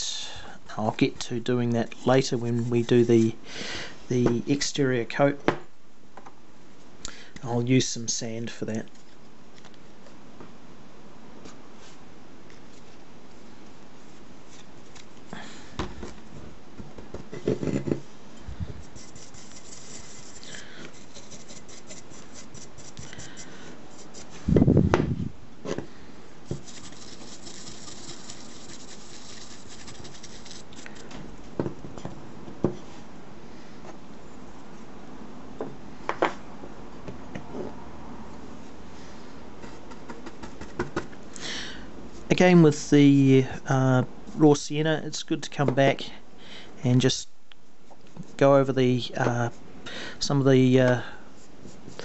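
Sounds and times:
paintbrush bristles scrubbing: 18.8 - 24.5, 26.6 - 31.1.

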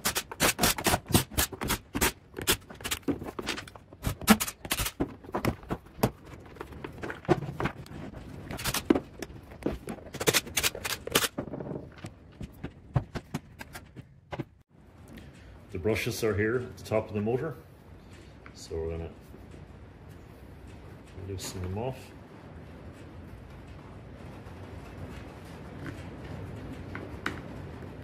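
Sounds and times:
plastic parts clicking and knocking: 0.0 - 14.5.

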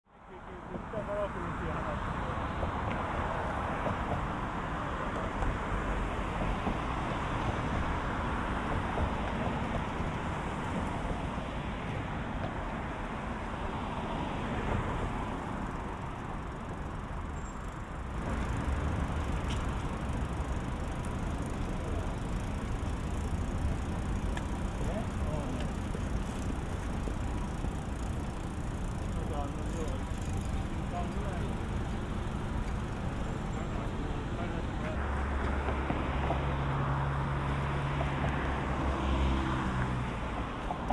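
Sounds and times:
road traffic rumble: 0.1 - 40.9.

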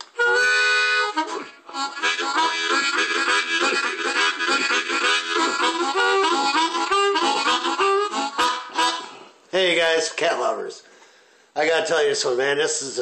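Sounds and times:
harmonica playing: 0.0 - 9.4.

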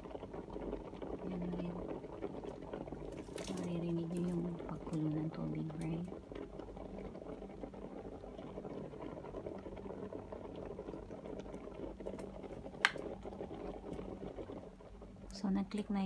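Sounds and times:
kettle boiling: 0.0 - 16.0.

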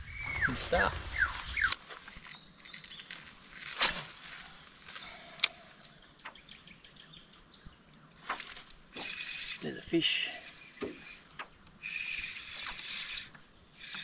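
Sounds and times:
light reel ticks: 7.9 - 14.0
reel click: 8.3 - 9.8, 10.4 - 14.0.

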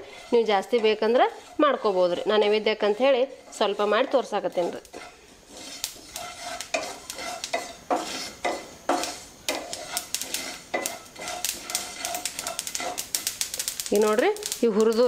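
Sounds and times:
spatula scraping a pan: 0.0 - 15.0
seeds crackling and popping: 3.5 - 15.0.

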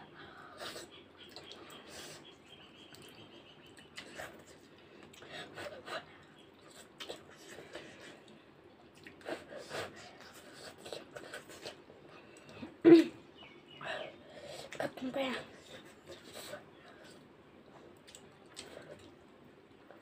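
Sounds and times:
slurping and chewing: 3.8 - 12.7, 15.6 - 19.2.

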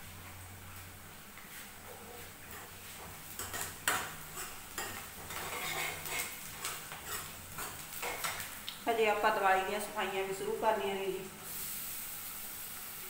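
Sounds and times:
metal ladle scraping a pan: 2.5 - 8.4.

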